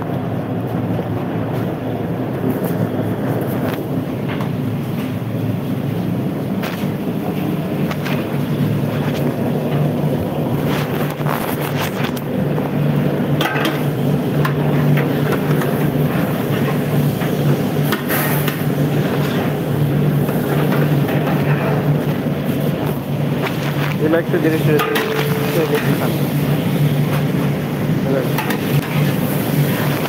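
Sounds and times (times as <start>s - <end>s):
kitchen equipment roar: 0.0s - 30.0s
metal spatula clinking on pots: 24.8s - 26.0s.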